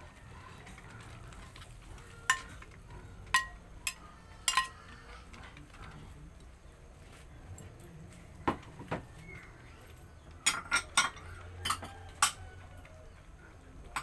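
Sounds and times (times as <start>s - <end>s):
metal spatula clinking ceramic bowl: 3.3s - 4.8s.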